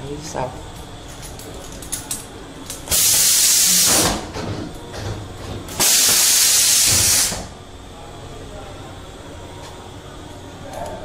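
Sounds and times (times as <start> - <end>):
hissing air blasts: 5.8 - 7.5.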